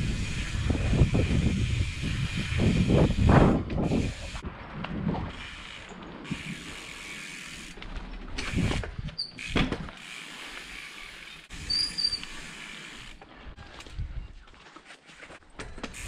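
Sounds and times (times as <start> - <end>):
bike freehub ratchet ticking: 0.0 - 3.3, 8.4 - 13.2
wheels thumping on bumps: 7.8 - 10.0
high squeal: 11.6 - 12.3.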